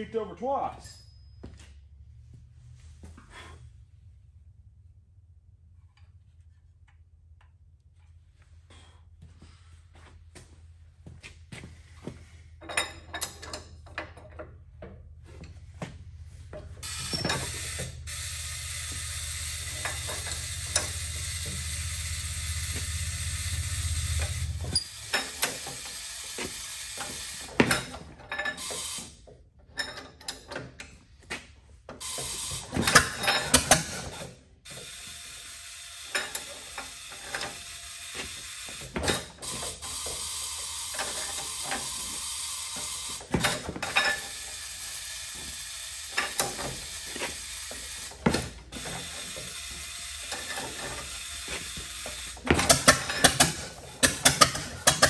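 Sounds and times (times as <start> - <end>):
engine hand crank clicking and clanking: 12.6 - 15.6, 16.6 - 29.0, 29.6 - 31.0, 32.0 - 34.8, 36.0 - 55.0.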